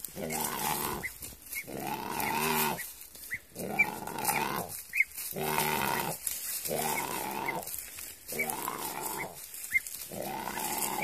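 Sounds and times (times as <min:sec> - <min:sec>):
bird growl-like calls: 0:10.1 - 0:11.0.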